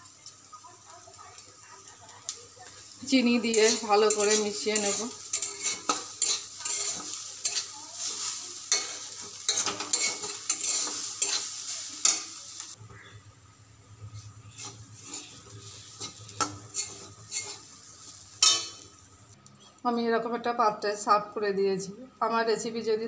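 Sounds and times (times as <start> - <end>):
light sizzle of frying: 0.0 - 23.0
metal spatula scraping a pan: 2.8 - 12.4, 14.2 - 19.0.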